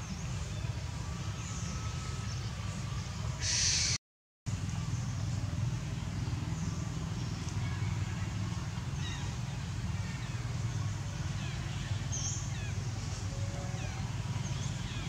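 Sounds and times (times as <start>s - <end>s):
low rumble with hiss: 0.0s - 15.0s.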